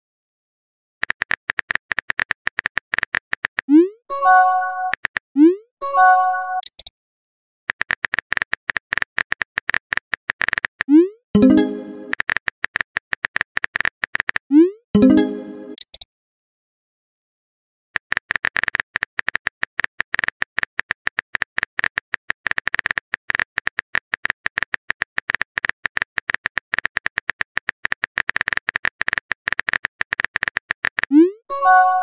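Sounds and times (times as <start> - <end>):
fast keyboard key clicks: 1.0 - 3.7, 4.9 - 5.2, 7.7 - 11.0, 12.0 - 14.5, 18.0 - 31.1.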